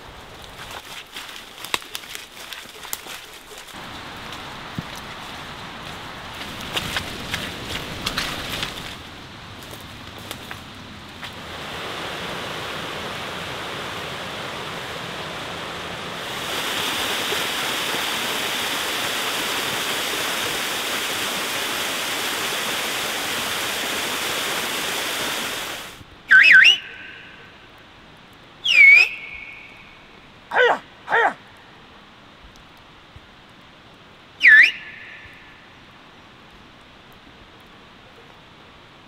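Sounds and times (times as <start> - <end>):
footsteps crunching on leaves: 0.3 - 11.4
waterfall rushing: 11.4 - 27.7, 28.6 - 31.4.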